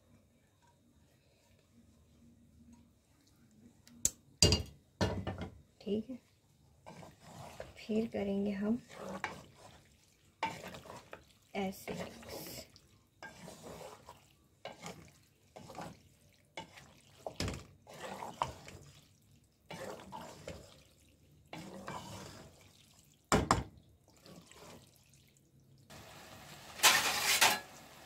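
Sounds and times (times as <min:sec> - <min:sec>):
spoon stirring macaroni in pot: 0:05.0 - 0:23.2, 0:24.0 - 0:25.3.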